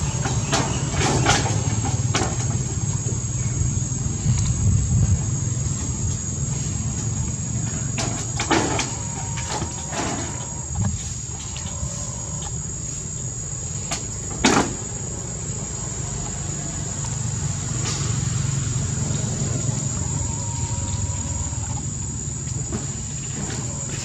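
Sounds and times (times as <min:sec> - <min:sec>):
steady high whine: 0:00.0 - 0:24.0
steady low hum: 0:00.0 - 0:24.0.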